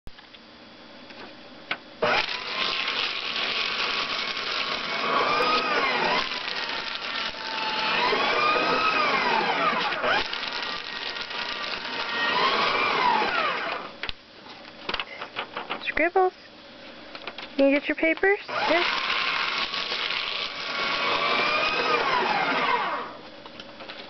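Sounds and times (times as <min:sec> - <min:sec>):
paper shredder motor whine: 0:02.0 - 0:14.1, 0:18.5 - 0:23.2.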